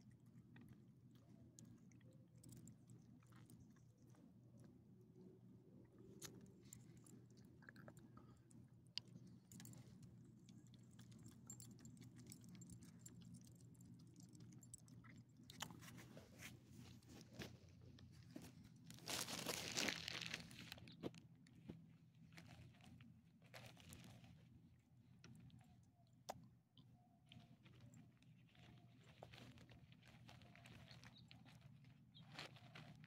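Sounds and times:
dog chewing and licking: 0:06.2 - 0:16.1
rustling: 0:15.7 - 0:24.6, 0:27.3 - 0:33.0.

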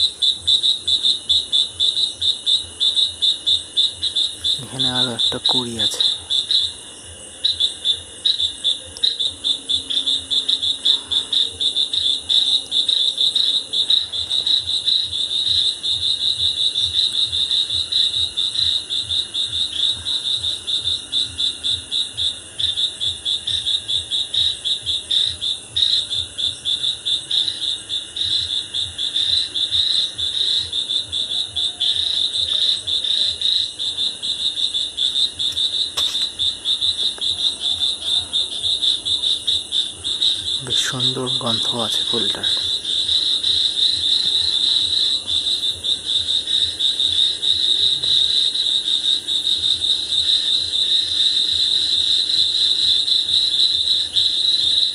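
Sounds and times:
crickets chirping: 0:00.0 - 0:54.9.

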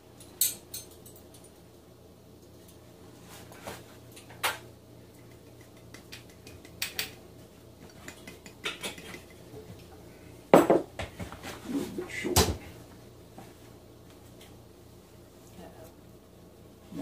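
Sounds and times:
dishes and utensils clinking: 0:00.2 - 0:01.5, 0:07.9 - 0:09.5.

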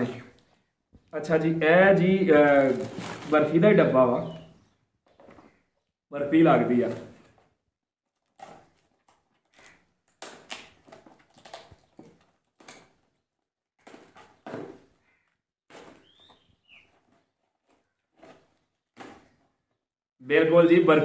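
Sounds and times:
cardboard rustling and scraping: 0:02.4 - 0:03.6, 0:13.8 - 0:19.7.

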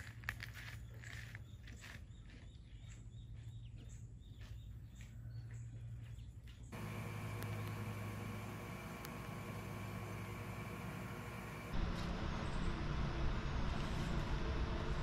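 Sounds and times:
birds chirping: 0:00.6 - 0:11.8
electrical hum and whine: 0:06.6 - 0:15.0
low steady hum: 0:06.7 - 0:15.0.

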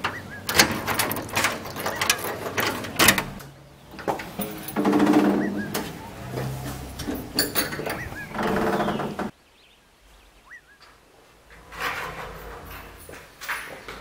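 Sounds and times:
gate hinge creaking: 0:00.0 - 0:09.3
keys rattling in a lock: 0:00.4 - 0:03.4, 0:04.0 - 0:05.7, 0:07.0 - 0:08.6, 0:12.4 - 0:14.0.

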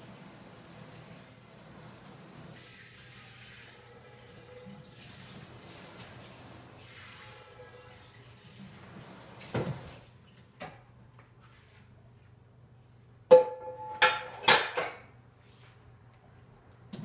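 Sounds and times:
tap running into sink: 0:09.4 - 0:10.0
dishes knocking and clanking: 0:13.3 - 0:15.1.

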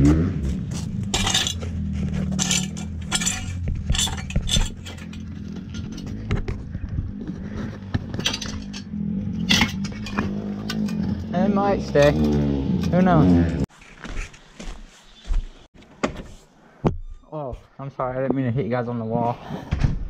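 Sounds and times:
metallic clinks and rattles: 0:01.0 - 0:06.3, 0:08.1 - 0:11.2.

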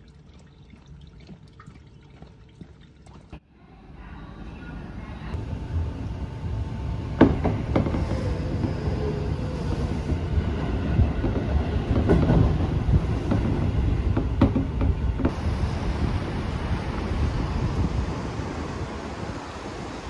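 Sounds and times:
train rumble inside car: 0:07.2 - 0:20.0.

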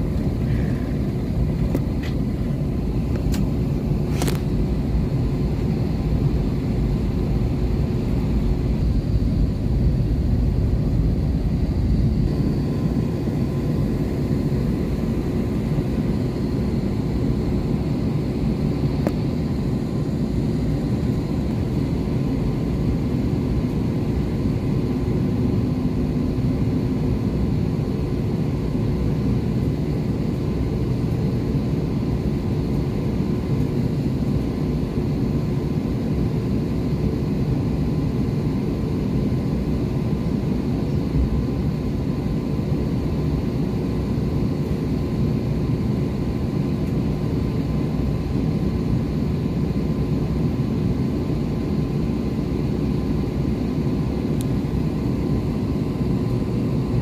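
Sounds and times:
jet engines rumbling: 0:00.0 - 0:57.0.

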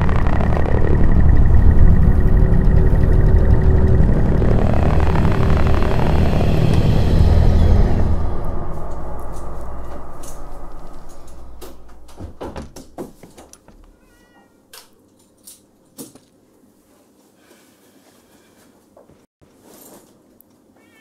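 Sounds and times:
deep rumble: 0:00.0 - 0:13.0
sharp clicks and knocks: 0:08.9 - 0:14.0
cat meowing: 0:13.9 - 0:14.7, 0:20.8 - 0:21.0.

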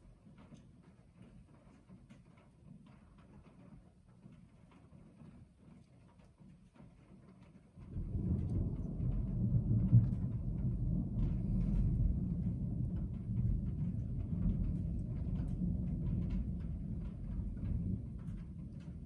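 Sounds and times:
raindrops ticking on car roof: 0:00.0 - 0:19.0
thunder rumbling: 0:07.8 - 0:19.0.

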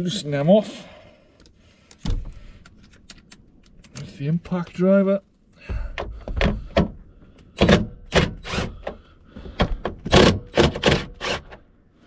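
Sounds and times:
impact driver bursts: 0:07.6 - 0:09.0, 0:10.1 - 0:11.6.

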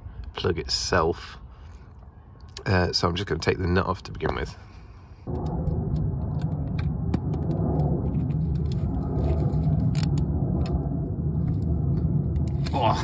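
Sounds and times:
low rumble: 0:00.0 - 0:13.0.

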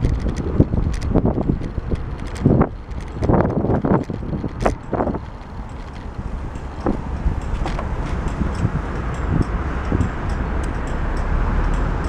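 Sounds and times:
bicycle rattling over bricks: 0:00.0 - 0:09.6
wind on microphone: 0:00.0 - 0:12.0.

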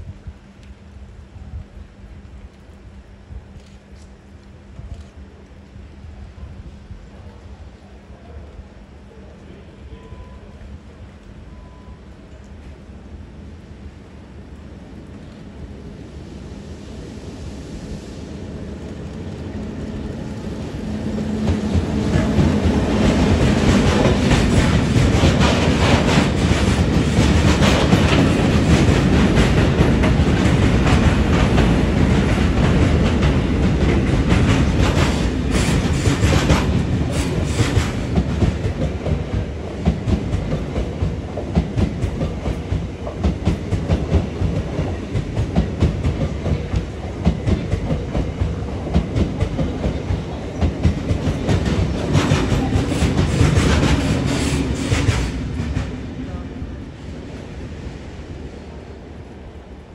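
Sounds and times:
train wheels rumbling: 0:12.2 - 0:59.9
clickety-clack over rail joints: 0:18.8 - 0:56.1.

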